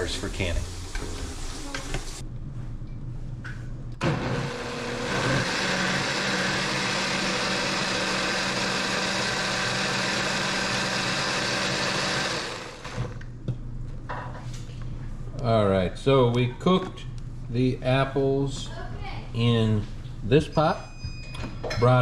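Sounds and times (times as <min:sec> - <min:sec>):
blender whirring: 0:04.0 - 0:13.3.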